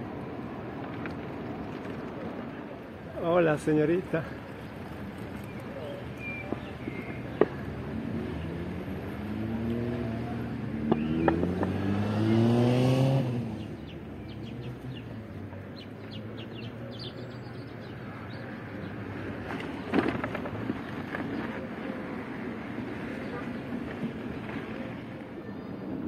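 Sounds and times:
vehicle engine pulling away: 4.2s - 22.0s.

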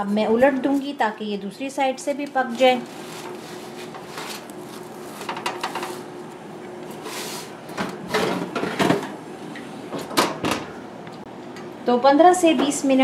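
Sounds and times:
oven rack sliding with rattle: 2.6s - 6.1s
spatula scraping on baking sheet: 2.6s - 6.1s.

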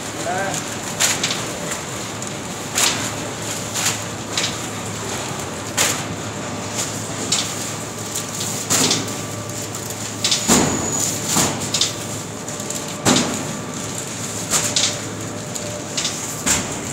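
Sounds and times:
belt conveyor running: 0.0s - 16.9s
paper sacks thudding onto stack: 2.7s - 12.0s, 12.6s - 16.9s.

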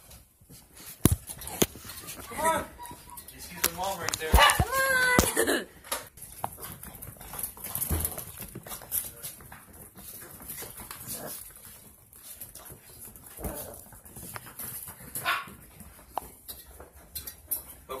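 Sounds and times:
puppy whimpering: 1.6s - 5.3s.

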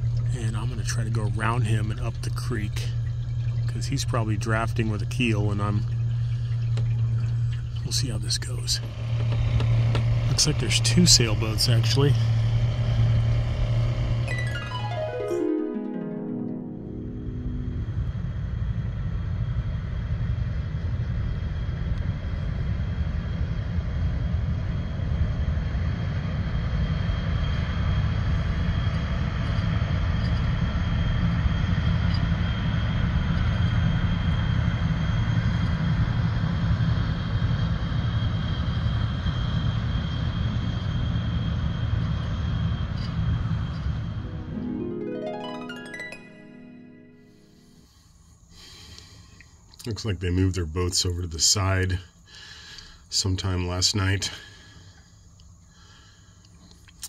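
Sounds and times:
outboard motor running: 0.0s - 14.3s
water noise: 1.2s - 9.3s.

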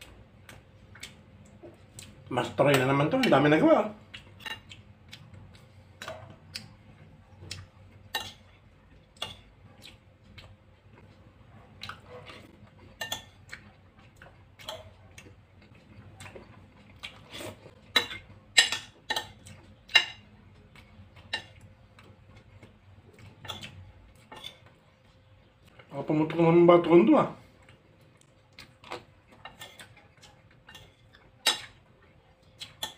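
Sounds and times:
mouth clicks of chewing: 4.1s - 6.8s.

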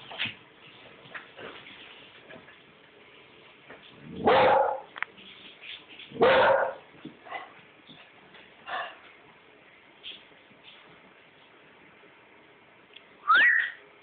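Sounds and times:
dog barking: 4.2s - 4.9s, 6.2s - 7.5s.

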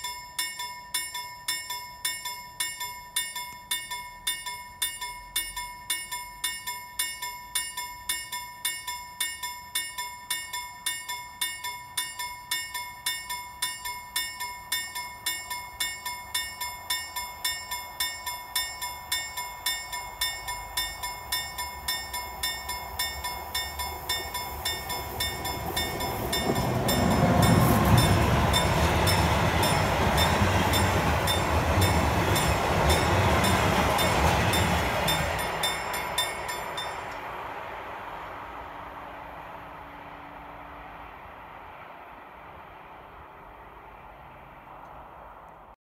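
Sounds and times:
level crossing bell dinging: 0.0s - 37.2s
train rumbling on rails: 11.2s - 45.8s.

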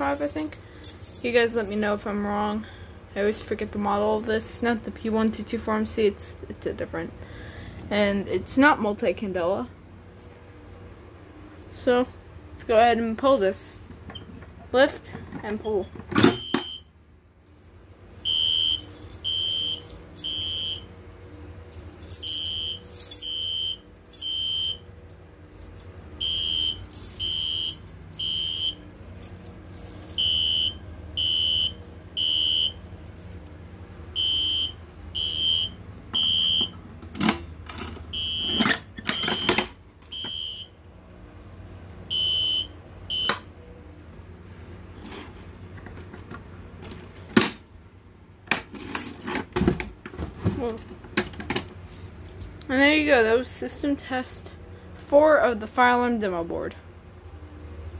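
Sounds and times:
fire alarm horn blasts: 16.3s - 16.9s, 18.2s - 20.9s, 22.2s - 24.9s, 26.2s - 28.8s, 30.1s - 32.8s, 34.1s - 36.8s, 38.1s - 39.5s, 40.1s - 40.8s, 42.1s - 43.4s.

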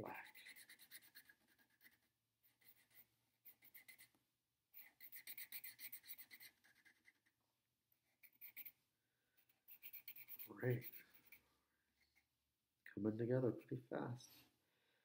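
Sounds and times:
marker scribbling on paper: 0.0s - 7.4s, 8.1s - 8.8s, 9.4s - 11.4s.

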